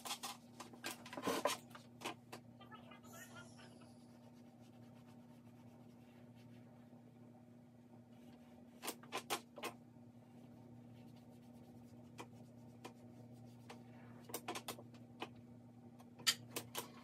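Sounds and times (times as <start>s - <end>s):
pencil scratching on paper: 3.8s - 6.6s.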